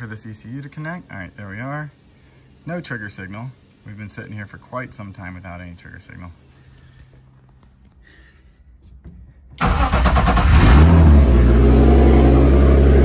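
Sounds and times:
car engine starting and idling: 9.6s - 13.0s.

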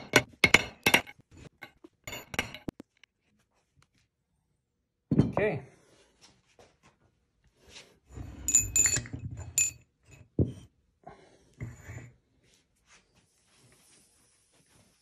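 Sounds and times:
metallic clinks: 8.4s - 10.2s.

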